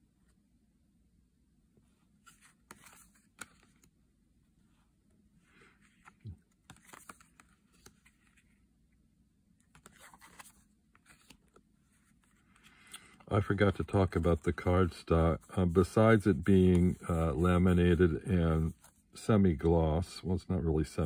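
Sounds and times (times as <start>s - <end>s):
cards clicking and sliding: 2.2s - 4.0s, 5.7s - 8.5s, 9.6s - 13.3s.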